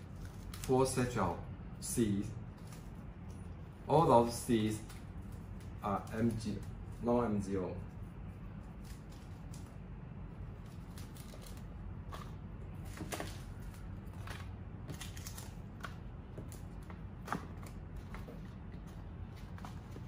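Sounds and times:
steady low hum: 0.0 - 20.0.

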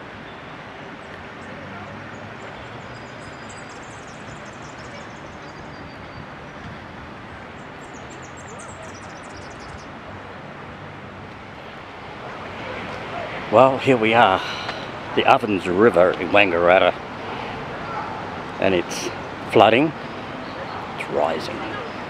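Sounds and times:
birds chirping: 0.0 - 10.0, 11.5 - 22.0
floodwater rushing: 10.0 - 22.0.

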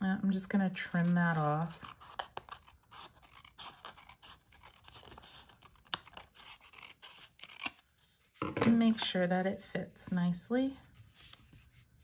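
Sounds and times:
scissors snipping paper: 0.9 - 7.8.

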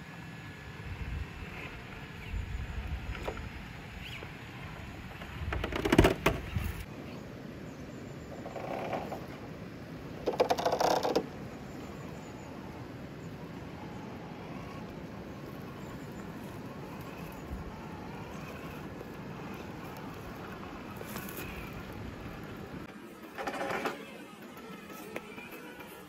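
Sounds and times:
toy car drivetrain whirring: 13.4 - 26.0.

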